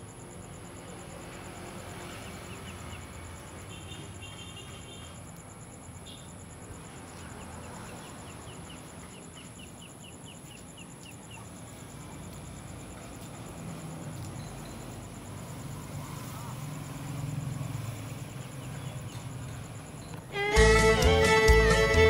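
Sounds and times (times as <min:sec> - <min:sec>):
insect trill: 0:00.0 - 0:22.0
bird chirping: 0:07.1 - 0:11.8, 0:18.0 - 0:21.4.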